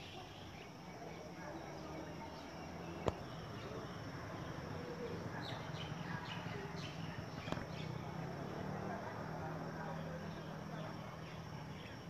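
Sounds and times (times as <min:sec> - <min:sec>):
bird chirps: 0:00.0 - 0:08.6.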